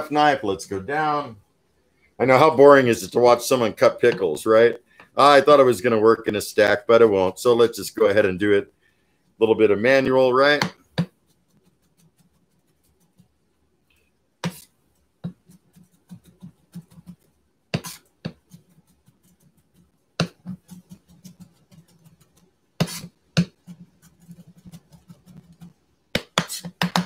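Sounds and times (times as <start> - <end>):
knife chopping on wooden board: 14.4 - 14.6, 17.7 - 18.5, 20.2 - 20.8, 22.8 - 23.7, 26.1 - 27.0.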